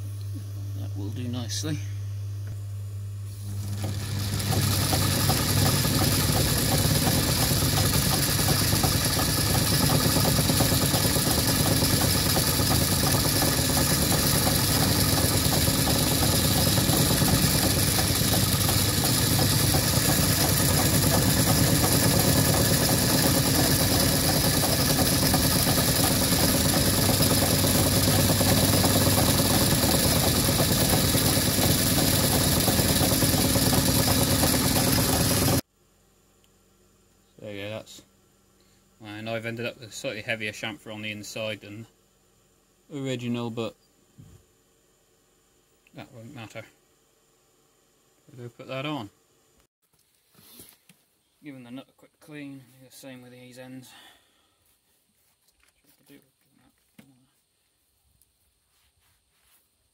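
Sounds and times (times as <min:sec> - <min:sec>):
cutting tool chamfering metal: 0:03.5 - 0:35.6
metal lathe running: 0:03.5 - 0:35.6.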